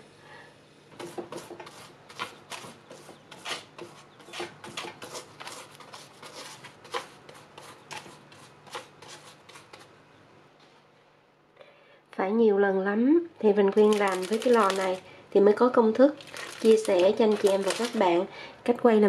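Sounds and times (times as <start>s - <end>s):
pastry brush scratching crackling: 1.3s - 9.9s, 13.8s - 15.0s, 16.3s - 18.2s.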